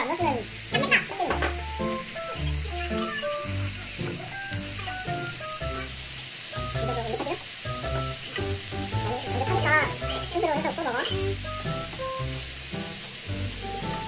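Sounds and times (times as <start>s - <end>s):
pork sizzling in a pan: 0.0s - 14.0s
background music with bass line: 0.5s - 10.5s, 11.1s - 14.0s.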